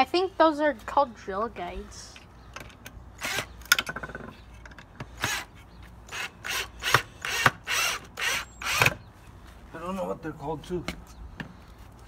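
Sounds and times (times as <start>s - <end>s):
cordless drill whir: 6.1s - 9.0s.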